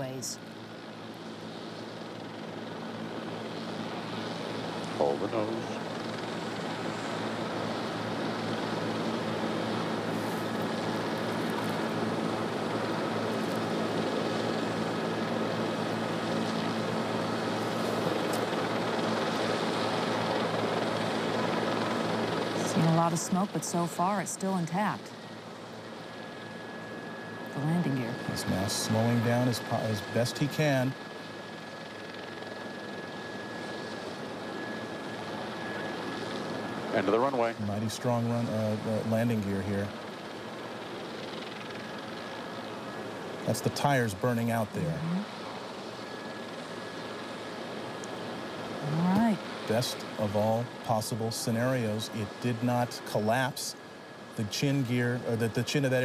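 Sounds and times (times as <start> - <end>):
faint high whine: 0.0 - 56.0
helicopter engine and rotor: 0.0 - 56.0.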